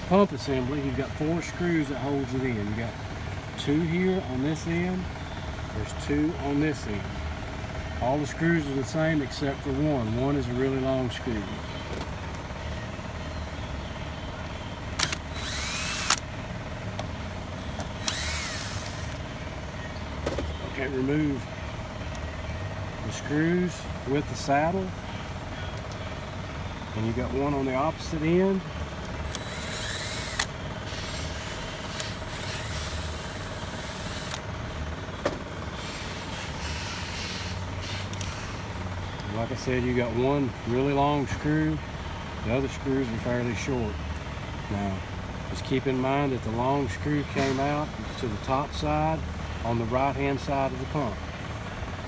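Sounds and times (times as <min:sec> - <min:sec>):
steady low hum: 0:11.3 - 0:39.4
drill motor whine: 0:14.9 - 0:16.2, 0:17.6 - 0:19.2, 0:29.3 - 0:34.4, 0:35.8 - 0:38.7.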